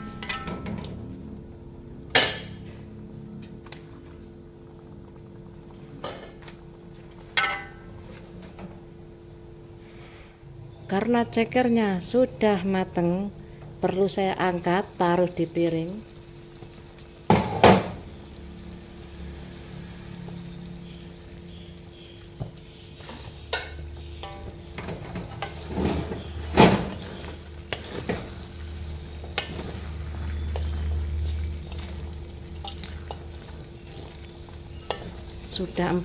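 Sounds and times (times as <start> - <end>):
chicken feet sizzling in a wok: 13.8 - 36.0
wooden spatula scraping a wok: 24.9 - 28.6.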